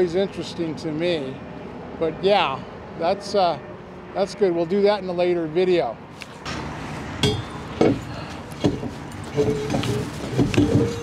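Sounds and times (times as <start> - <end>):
metal knocks and clinks: 7.2 - 11.0.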